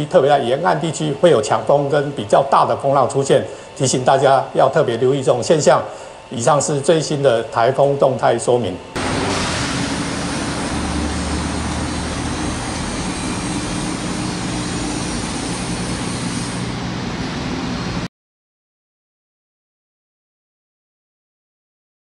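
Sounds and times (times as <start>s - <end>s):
street traffic rushing: 9.0s - 17.6s.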